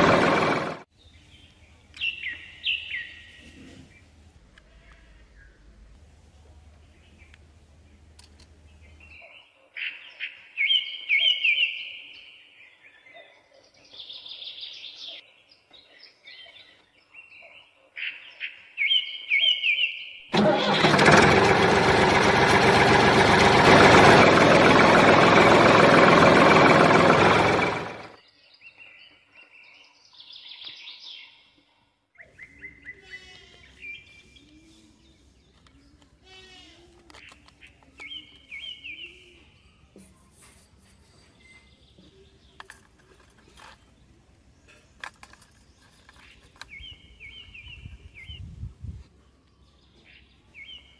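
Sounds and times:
small motor of model tractor: 0.0s - 0.9s, 20.3s - 28.2s
birds chirping: 41.2s - 48.5s.

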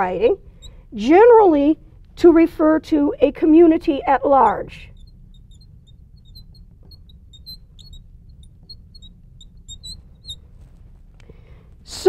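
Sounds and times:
low steady hum: 0.0s - 12.0s
marker squeaking on glass: 0.1s - 0.8s, 3.8s - 11.0s.

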